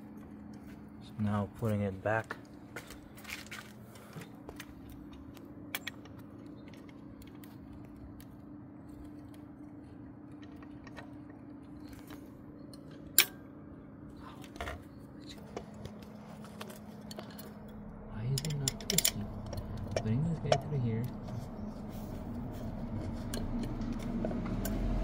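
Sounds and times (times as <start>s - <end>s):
steady low hum: 0.0s - 25.0s
clicks and metallic knocks: 16.6s - 21.4s.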